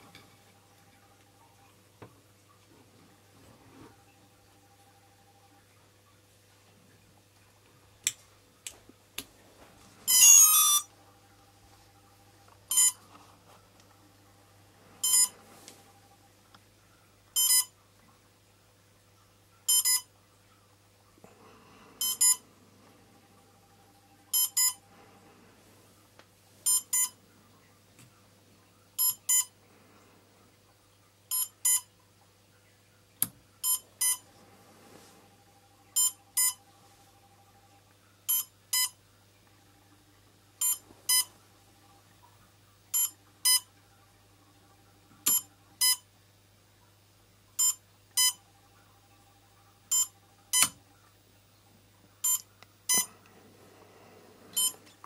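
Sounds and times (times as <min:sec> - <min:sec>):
faint electrical hum: 0:00.0 - 0:55.0
short electronic beeps: 0:10.1 - 0:10.9, 0:12.7 - 0:13.0, 0:15.0 - 0:15.3, 0:17.4 - 0:17.7, 0:19.7 - 0:20.1, 0:22.0 - 0:22.4, 0:24.3 - 0:24.8, 0:43.0 - 0:43.6, 0:52.2 - 0:53.1, 0:54.6 - 0:54.8.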